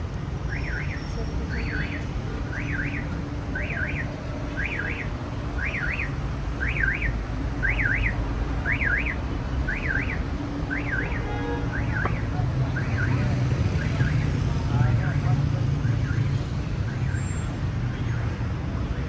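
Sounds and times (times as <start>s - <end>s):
street traffic rumble: 0.0s - 19.0s
car alarm warbling: 0.5s - 14.3s.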